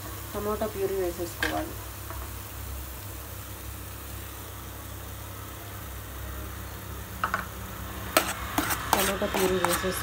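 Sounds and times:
food frying in oil: 0:00.0 - 0:10.0.

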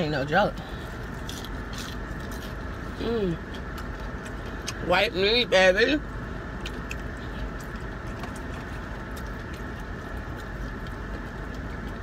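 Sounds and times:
car interior hum: 0:00.0 - 0:12.0
person chewing crispy food: 0:00.4 - 0:12.0.

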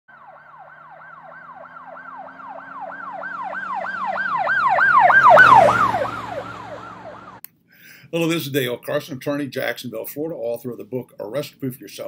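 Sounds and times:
low engine hum: 0:00.1 - 0:07.4
siren yelping: 0:00.1 - 0:07.4.

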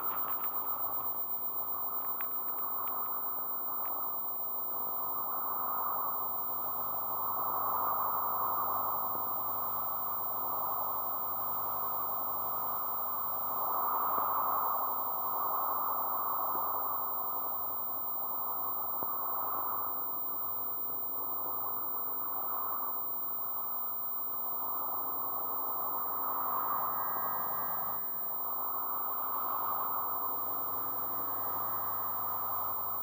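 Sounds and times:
muffled electronic air rush: 0:00.0 - 0:02.0.

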